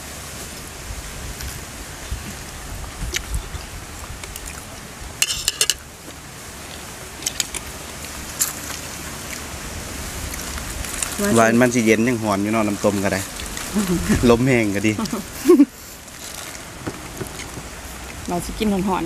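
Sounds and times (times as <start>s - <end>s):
steady background hiss: 0.0s - 19.0s
metal spoons clinking against bowls: 5.2s - 5.8s.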